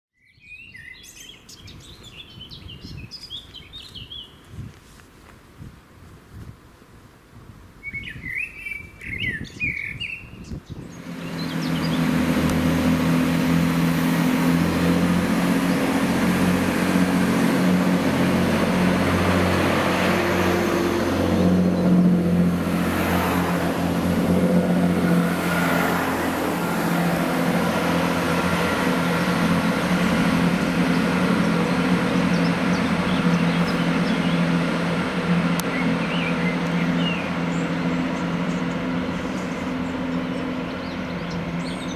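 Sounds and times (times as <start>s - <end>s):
bird chirps: 0.2s - 4.5s, 7.8s - 12.1s, 35.6s - 41.9s
train diesel engines droning: 10.9s - 41.9s.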